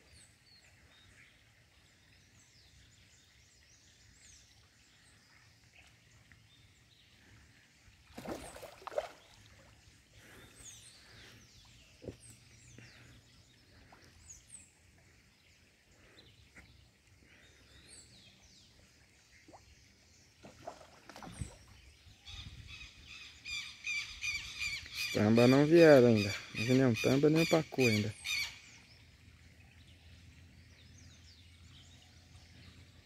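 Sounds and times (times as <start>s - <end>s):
small birds chirping: 0.0s - 33.0s
fish splashing in water: 8.0s - 9.7s, 20.4s - 21.8s.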